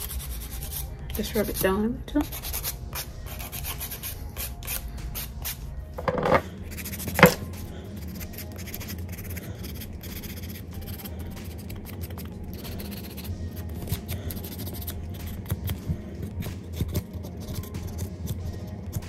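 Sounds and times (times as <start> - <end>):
nail buffer scratching fingernails: 0.0 - 19.0
knock on table: 6.0 - 6.4, 7.2 - 7.4.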